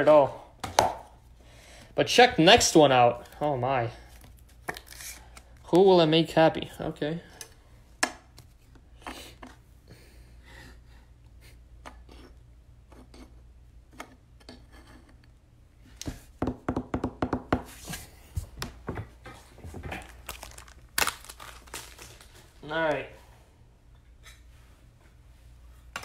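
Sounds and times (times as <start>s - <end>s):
trading cards clicking and rustling: 19.9s - 22.5s.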